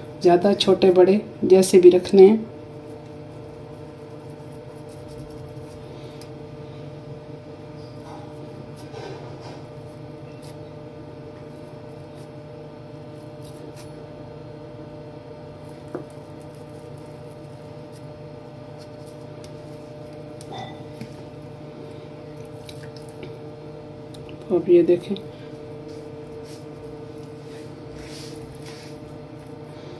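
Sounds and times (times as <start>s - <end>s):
steady hum: 0.0s - 29.9s
knife squishing through mince: 2.7s - 6.4s, 7.7s - 14.7s.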